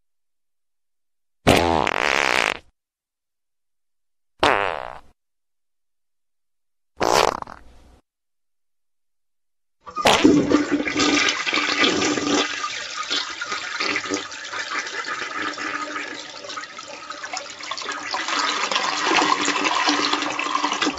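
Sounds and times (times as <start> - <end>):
toilet flushing: 9.9 - 20.9.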